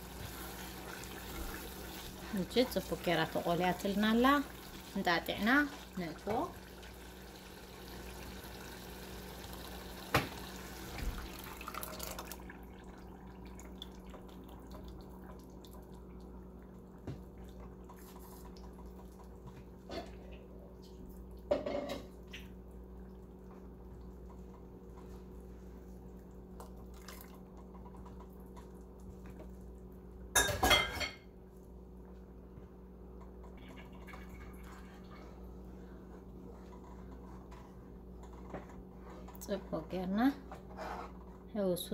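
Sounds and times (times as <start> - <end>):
stew simmering: 0.0 - 30.2
wooden spoon scraping a pot: 40.4 - 41.5.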